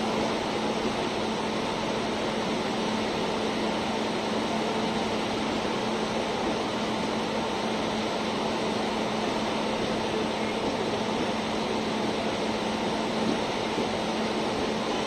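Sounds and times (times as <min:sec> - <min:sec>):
train wheels rushing on rails: 0:00.0 - 0:15.0.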